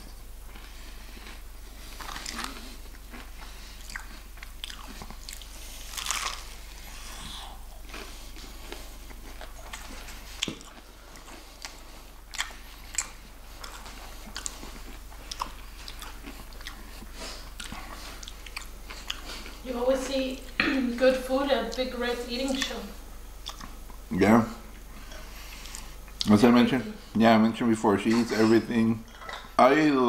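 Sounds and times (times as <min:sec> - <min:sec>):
close-up chewing: 0:00.4 - 0:19.7, 0:21.6 - 0:24.1, 0:24.7 - 0:26.4
crunchy bites into fried chicken: 0:03.9 - 0:06.5.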